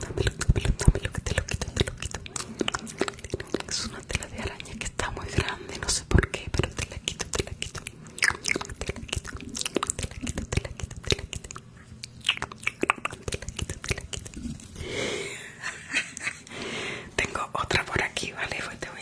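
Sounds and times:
wet mouth clicks and smacks: 0:00.0 - 0:04.8, 0:06.1 - 0:14.5.

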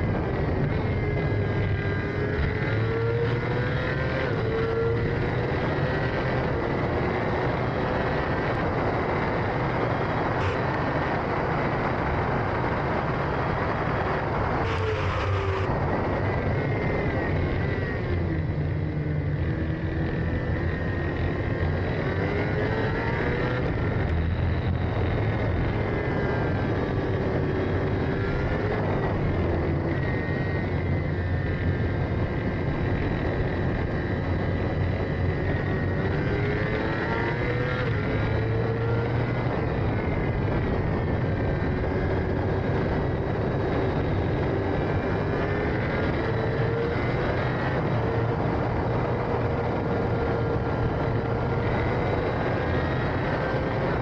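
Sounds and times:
racing engine revving: 0:00.0 - 0:12.0, 0:12.9 - 0:54.0.

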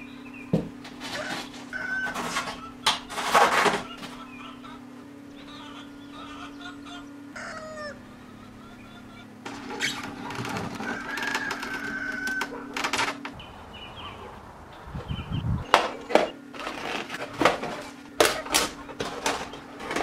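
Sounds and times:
steady low hum: 0:00.0 - 0:20.0
rooster crowing: 0:01.0 - 0:02.8, 0:07.3 - 0:08.3, 0:10.2 - 0:13.2.

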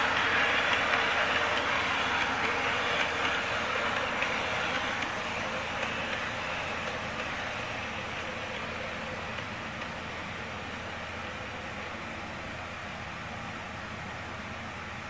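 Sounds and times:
model train motor whirring: 0:00.0 - 0:10.7.

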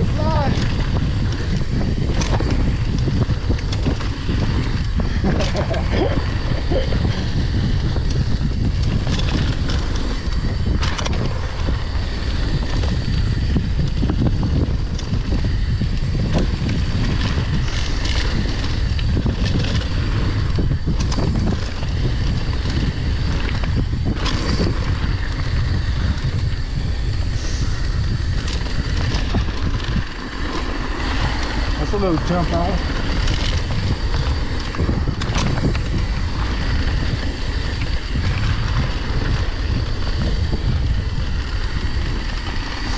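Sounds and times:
bike knocks and rattles: 0:00.0 - 0:27.3, 0:28.0 - 0:42.9
tyres on dirt and gravel: 0:00.0 - 0:42.9
wind buffeting microphone: 0:00.0 - 0:42.9.

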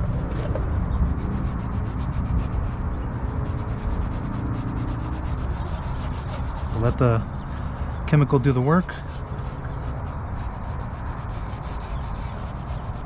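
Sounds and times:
low rumble: 0:00.0 - 0:08.2
wipe rubbing plastic lens: 0:00.1 - 0:13.0.

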